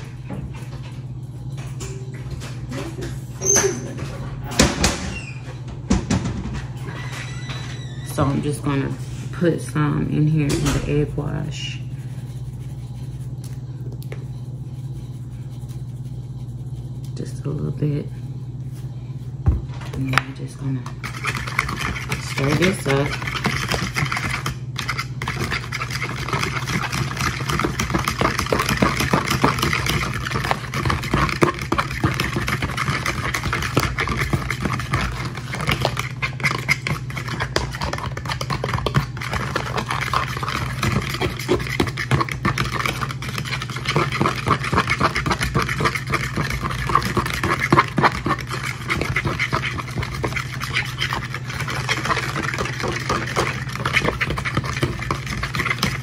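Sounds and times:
steady low hum: 0:00.0 - 0:56.0
utensil clicking and scraping bowl: 0:20.0 - 0:56.0.

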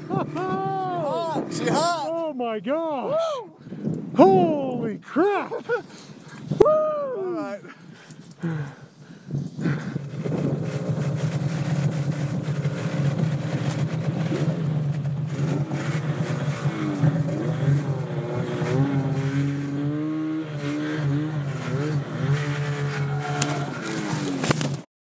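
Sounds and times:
snowmobile engine revving: 0:00.0 - 0:03.2, 0:09.5 - 0:24.8.

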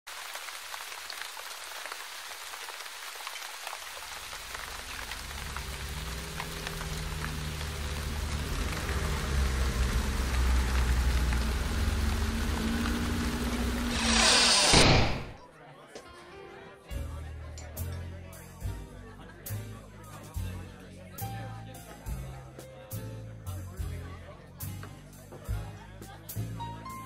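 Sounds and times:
rain pattering: 0:00.1 - 0:14.2
low held drone: 0:04.6 - 0:15.4.

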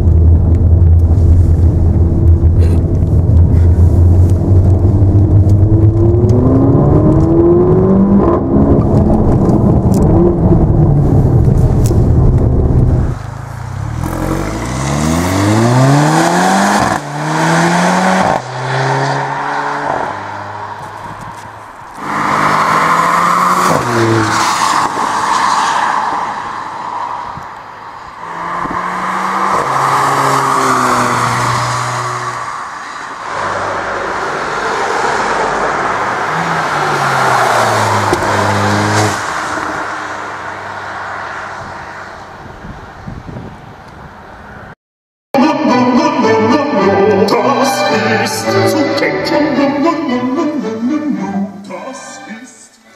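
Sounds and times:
car engine accelerating hard: 0:00.0 - 0:25.0, 0:33.4 - 0:42.2.

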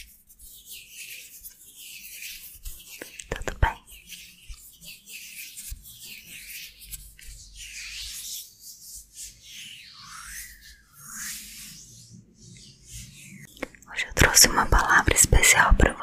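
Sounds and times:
fingers rubbing around mouth: 0:00.0 - 0:09.2.

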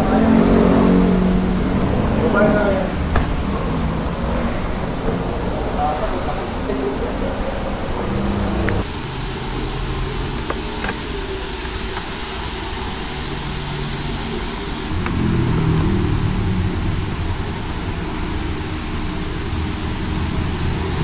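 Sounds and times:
workshop background noise: 0:00.0 - 0:16.3
traffic noise: 0:00.0 - 0:21.0
low rumble: 0:07.0 - 0:11.6, 0:12.4 - 0:21.0.

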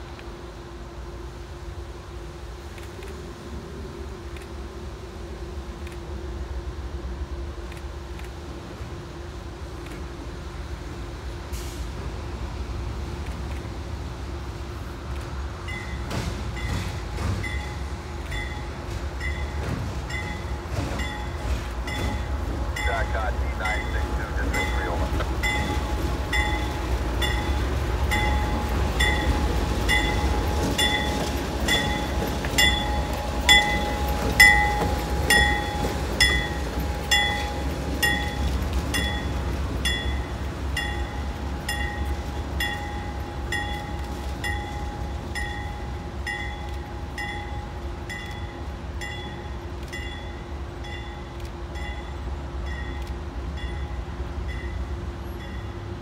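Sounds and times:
diesel locomotive engine rumbling: 0:00.0 - 0:56.0
locomotive bell ringing: 0:17.4 - 0:53.0.

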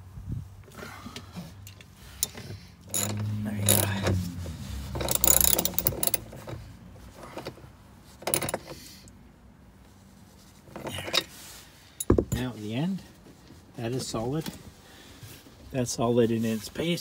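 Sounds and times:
ratchet wrench clicking: 0:01.8 - 0:04.2, 0:04.9 - 0:06.6.

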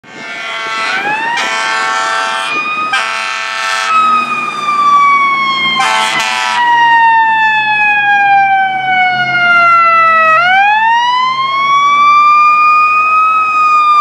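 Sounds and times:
fire truck siren: 0:00.0 - 0:14.0
truck engine rumble: 0:00.0 - 0:14.0
air horn blasts: 0:00.1 - 0:04.2, 0:05.8 - 0:06.7.

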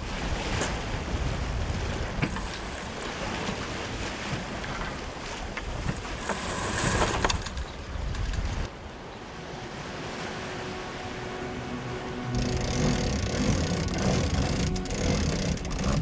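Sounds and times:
wind buffeting microphone: 0:00.0 - 0:10.6
rushing water around a boat: 0:00.0 - 0:16.0.

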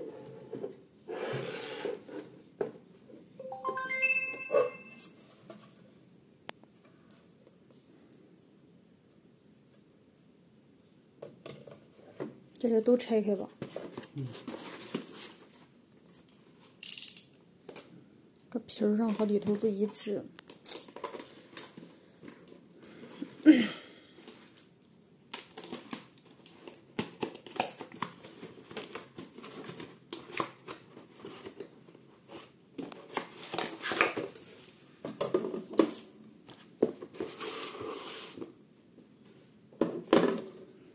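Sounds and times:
packaging rustling and crinkling: 0:20.5 - 0:22.6, 0:25.3 - 0:31.7, 0:32.3 - 0:34.7.

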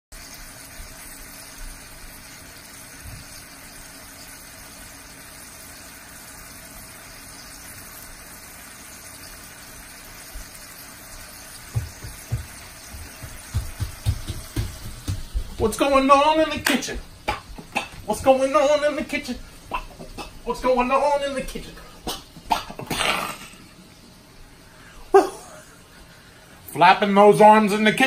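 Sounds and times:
chicken sizzling in oil: 0:00.1 - 0:14.6
low thumps: 0:11.6 - 0:16.0.

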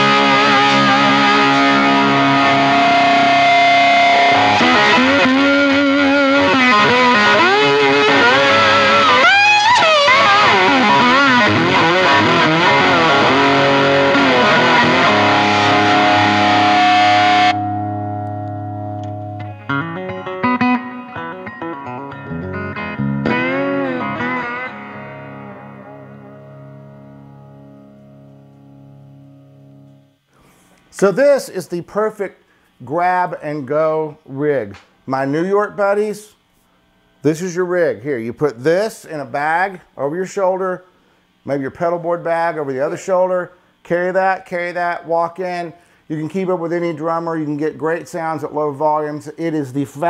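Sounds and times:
clean guitar notes ringing: 0:00.0 - 0:30.2
distorted electric guitar lead: 0:00.0 - 0:30.3.

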